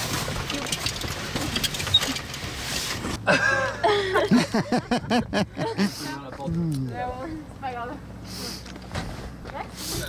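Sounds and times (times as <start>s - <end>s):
steady low hum: 3.0s - 10.0s
people talking and laughing: 3.2s - 8.6s.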